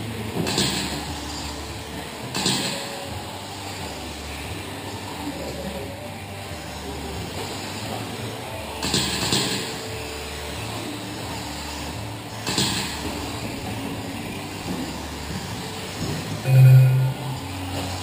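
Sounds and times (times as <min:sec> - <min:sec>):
electric rc cars running: 0:00.0 - 0:16.4, 0:17.4 - 0:18.0
steady low hum: 0:09.7 - 0:18.0.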